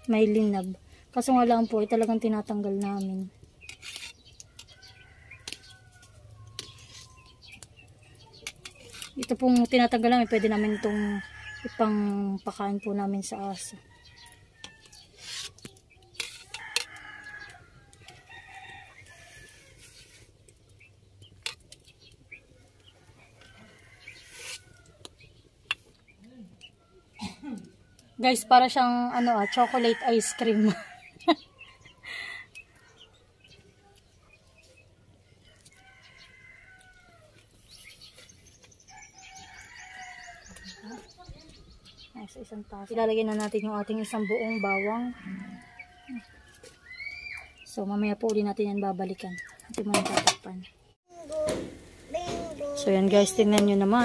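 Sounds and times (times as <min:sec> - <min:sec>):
rooster crowing: 0:10.3 - 0:11.8, 0:43.9 - 0:46.8
high bird chirps: 0:45.6 - 0:49.7.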